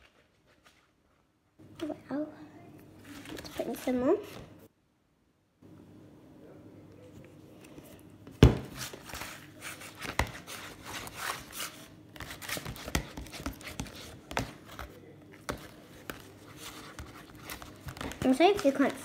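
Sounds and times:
slime being mixed in a bowl: 0:08.6 - 0:19.0.

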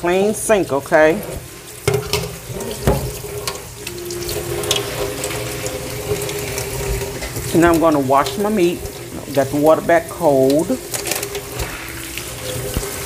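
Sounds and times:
faucet running into steel sink: 0:00.0 - 0:13.0
knocks in sink: 0:01.8 - 0:03.2.

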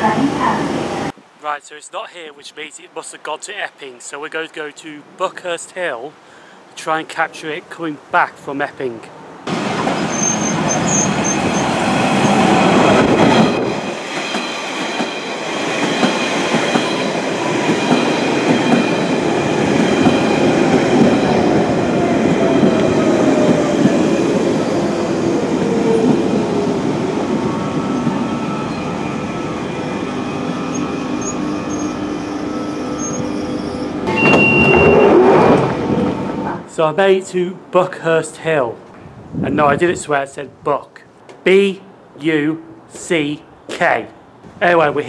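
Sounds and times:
train rail and wheel noise: 0:09.2 - 0:36.7
train motor whine falling: 0:30.7 - 0:36.5.

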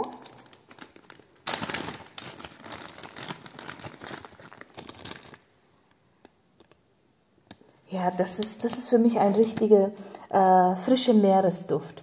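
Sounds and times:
plastic bag crinkling: 0:00.0 - 0:05.6.

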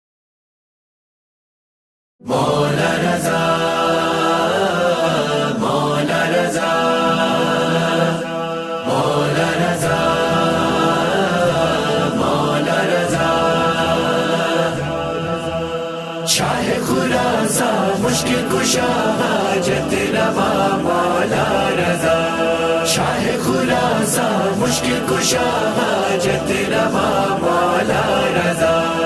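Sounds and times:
chanted singing: 0:02.2 - 0:29.0.

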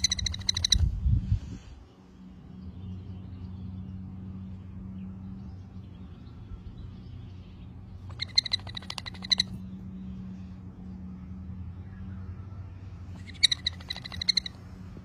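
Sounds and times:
parrot chicks chirping: 0:00.0 - 0:00.9, 0:08.1 - 0:09.6, 0:13.2 - 0:14.6
steady low hum: 0:00.0 - 0:15.0.

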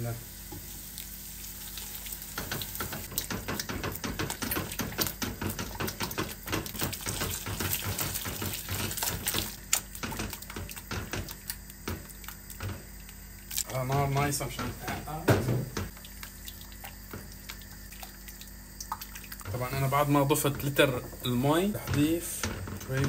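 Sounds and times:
water pouring into a pot: 0:00.3 - 0:12.4, 0:15.9 - 0:20.3
spoon knocking on a pot: 0:02.4 - 0:09.3.

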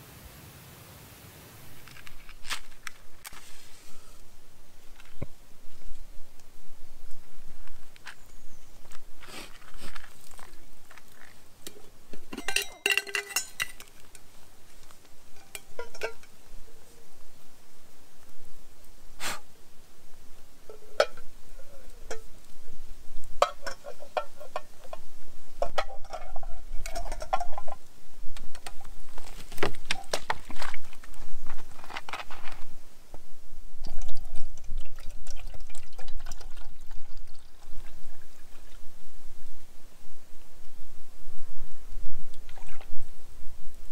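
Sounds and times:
metal cookware clinking: 0:12.1 - 0:14.3, 0:15.3 - 0:16.4, 0:23.4 - 0:25.0, 0:25.6 - 0:27.7
water pouring into a pot: 0:33.8 - 0:38.8.

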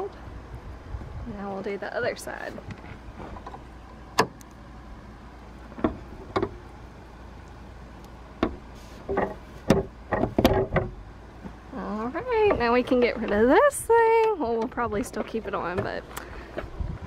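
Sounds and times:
clicks and knocks of hood strut: 0:08.4 - 0:11.6.

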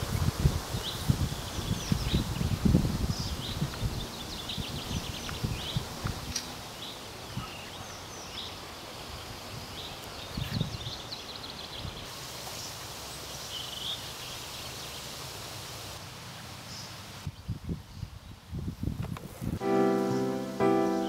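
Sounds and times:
small birds chirping: 0:00.0 - 0:15.1
leaves rustling in breeze: 0:00.0 - 0:21.0.

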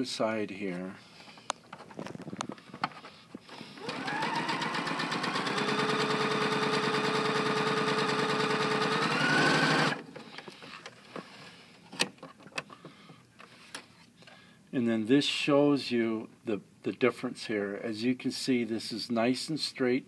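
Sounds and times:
sewing machine stitching: 0:03.8 - 0:10.0.

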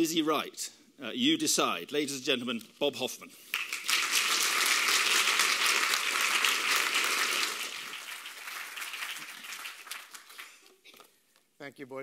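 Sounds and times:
audience applauding: 0:03.5 - 0:10.8.

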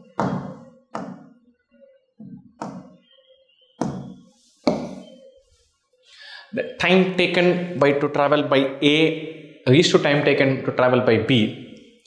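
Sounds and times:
hard taps on a whiteboard: 0:00.0 - 0:01.3, 0:02.5 - 0:03.0, 0:03.8 - 0:05.0.

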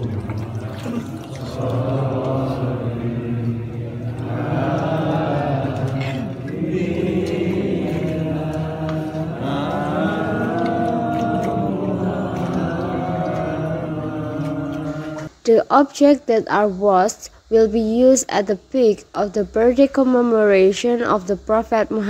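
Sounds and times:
men chanting together: 0:00.0 - 0:15.3.

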